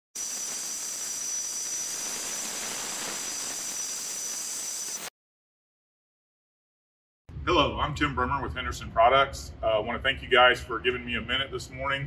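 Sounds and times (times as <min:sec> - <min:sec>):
hissing rush with high whistle: 0:00.2 - 0:05.1.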